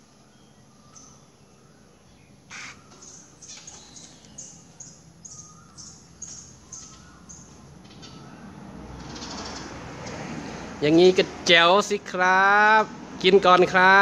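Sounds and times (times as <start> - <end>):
bird chirping: 0.0 - 9.7.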